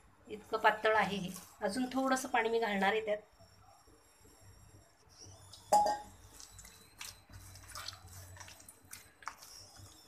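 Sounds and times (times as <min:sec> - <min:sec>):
hands kneading wet dough: 0:06.1 - 0:10.0.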